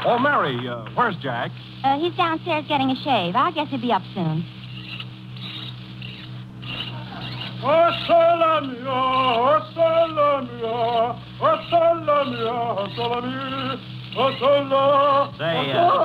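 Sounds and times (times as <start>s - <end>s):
low recording hum: 0.0s - 16.0s
man singing: 7.6s - 16.0s.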